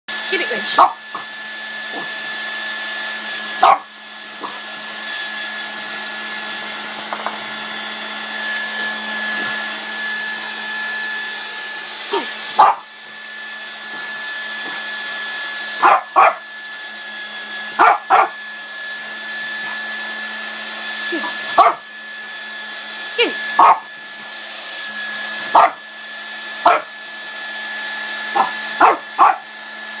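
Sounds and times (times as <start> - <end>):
hair dryer blowing: 0.1 - 30.0
dog barking: 0.8 - 1.0, 3.6 - 4.6, 12.5 - 12.9, 15.8 - 16.4, 17.8 - 18.4, 21.5 - 21.9, 23.6 - 23.9, 25.5 - 25.8, 26.6 - 26.9, 28.3 - 29.5.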